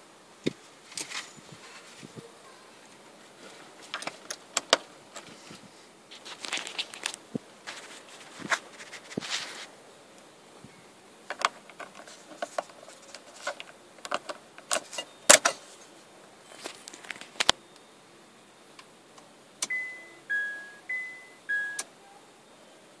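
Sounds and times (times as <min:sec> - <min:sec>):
electronic chime: 0:19.7 - 0:21.8.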